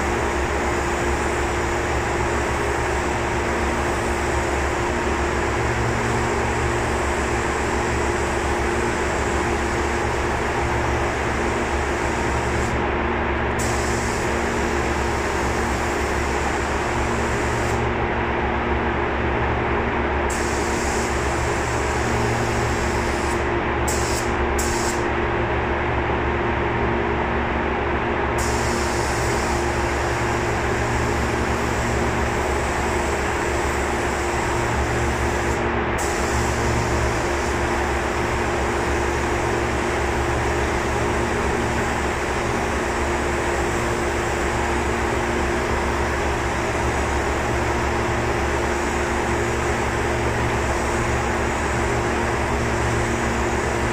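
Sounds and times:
machinery hum: 0:00.0 - 0:53.9
spray gun hissing: 0:05.4 - 0:12.8, 0:13.6 - 0:17.8, 0:20.3 - 0:25.0, 0:28.4 - 0:53.9.

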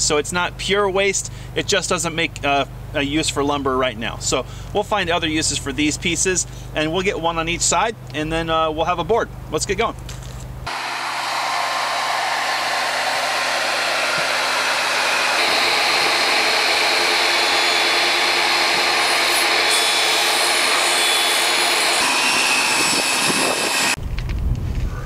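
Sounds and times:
table saw whining: 0:10.7 - 0:24.0.

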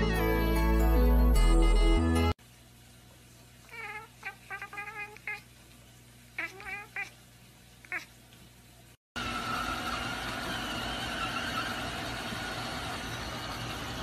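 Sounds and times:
cat meowing: 0:03.7 - 0:05.5, 0:06.4 - 0:07.2, 0:07.9 - 0:08.1.

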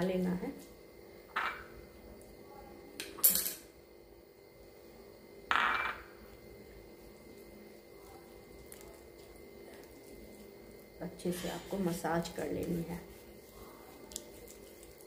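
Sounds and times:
hands rubbing paste on skin: 0:11.7 - 0:15.0.

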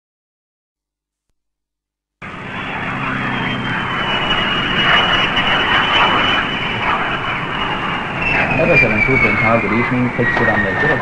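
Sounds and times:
high turbine whine: 0:02.2 - 0:11.0
jet engine roar: 0:02.2 - 0:11.0.

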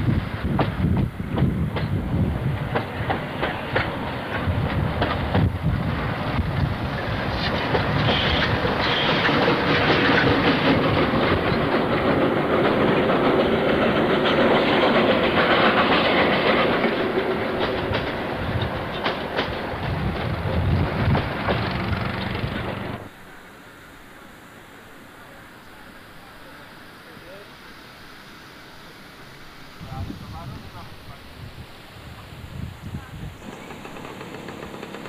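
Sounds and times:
steam train passing: 0:00.0 - 0:35.0
wagons clattering over rail joints: 0:06.4 - 0:23.1, 0:33.4 - 0:35.0.

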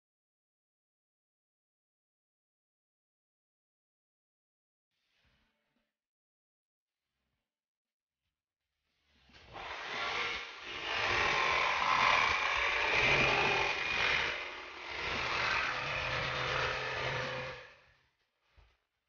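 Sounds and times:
jigsaw cutting wall panel: 0:08.9 - 0:18.9.

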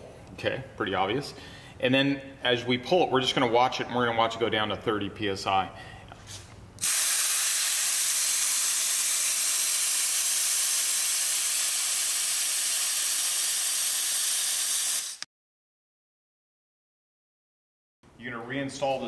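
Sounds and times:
air hissing out of tire: 0:06.8 - 0:15.2.

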